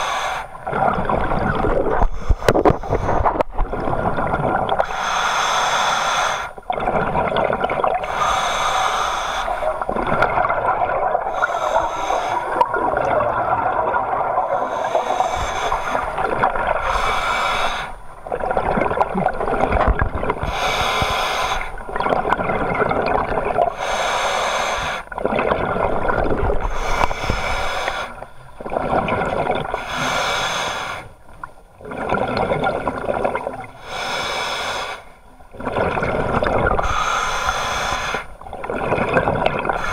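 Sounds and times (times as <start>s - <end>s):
hissing regulator inhale: 0.0s - 0.6s, 2.0s - 3.5s, 4.8s - 6.6s, 8.0s - 9.9s, 11.3s - 12.7s, 14.5s - 16.2s, 16.8s - 18.0s, 20.4s - 21.8s, 23.7s - 25.1s, 26.6s - 28.4s, 29.7s - 31.2s, 33.8s - 35.2s, 36.7s - 38.4s, 39.7s - 39.9s
bubbling exhale underwater: 0.6s - 4.9s, 9.7s - 17.2s, 21.9s - 23.8s, 35.5s - 37.9s, 38.5s - 39.9s.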